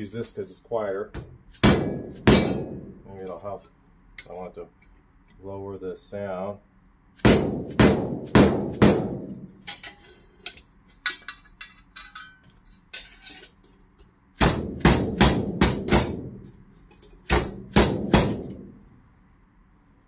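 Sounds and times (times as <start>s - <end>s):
mallet striking chisel on metal: 1.6s - 2.8s, 14.4s - 16.2s, 17.3s - 18.6s.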